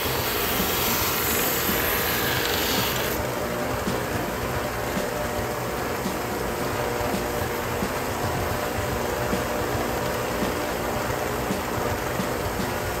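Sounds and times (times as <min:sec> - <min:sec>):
sander belt grinding leather: 0:00.0 - 0:03.2
sander motor running: 0:00.0 - 0:03.3.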